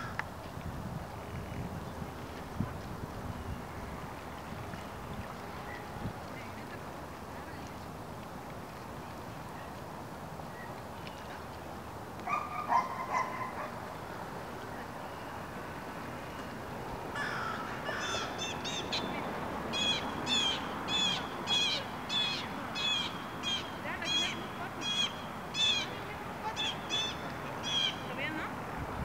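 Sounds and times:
bird harsh high calls: 0:17.2 - 0:19.1, 0:19.7 - 0:28.1
bird low call: 0:17.2 - 0:28.2.

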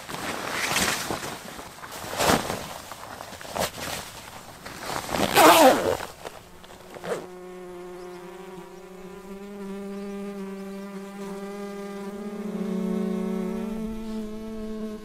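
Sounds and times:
jacket fabric rustling: 0:00.0 - 0:07.3
steady buzzing hum: 0:05.7 - 0:15.0.

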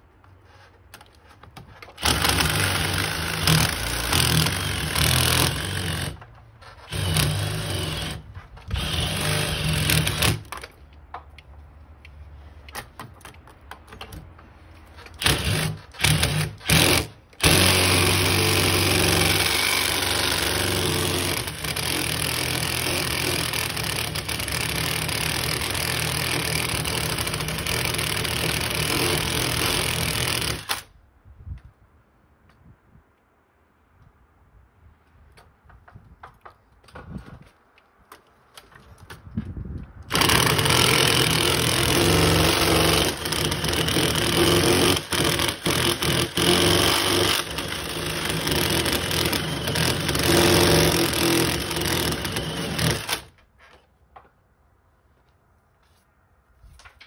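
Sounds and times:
drill boring into brick: 0:02.0 - 0:10.5, 0:15.1 - 0:30.9, 0:40.1 - 0:53.3.

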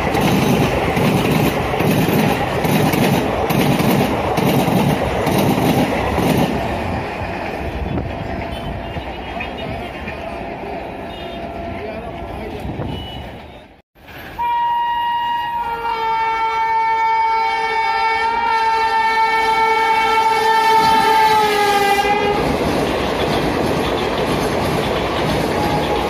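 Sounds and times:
train wheel-and-rail noise: 0:00.0 - 0:17.1, 0:17.8 - 0:26.0
locomotive two-tone air horn: 0:14.2 - 0:22.5.

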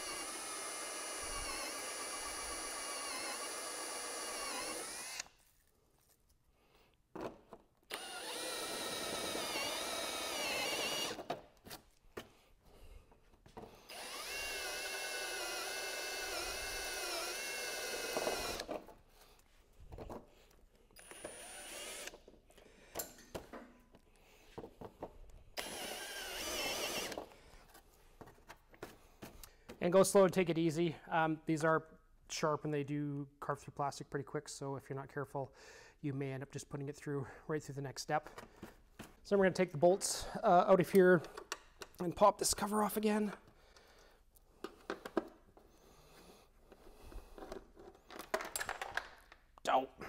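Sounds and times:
power drill whining into plastic: 0:00.0 - 0:05.4, 0:07.9 - 0:11.5, 0:13.6 - 0:19.0, 0:21.0 - 0:22.4, 0:25.6 - 0:27.4.

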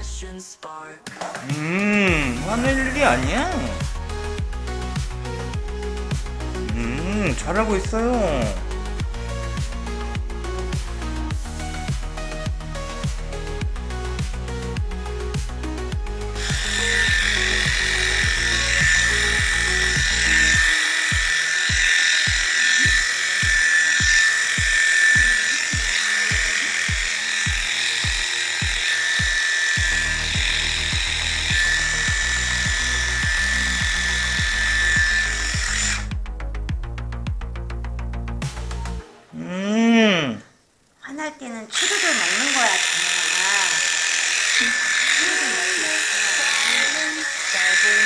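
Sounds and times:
music with steady beat: 0:01.1 - 0:39.4
electric clipper whining: 0:01.4 - 0:36.2, 0:41.7 - 0:48.0.

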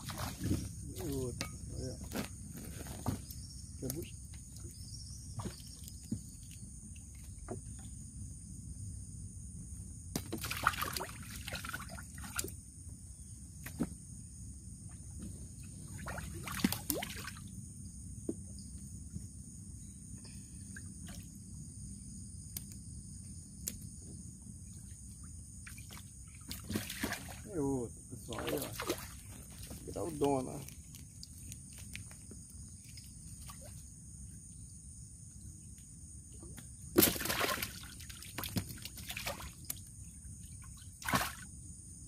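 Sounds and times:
water trickling and splashing: 0:00.0 - 0:01.3, 0:10.2 - 0:12.6, 0:15.8 - 0:17.5, 0:24.7 - 0:33.8, 0:37.0 - 0:41.5
loud splashes: 0:10.4 - 0:12.4, 0:37.0 - 0:38.2, 0:41.0 - 0:41.4.

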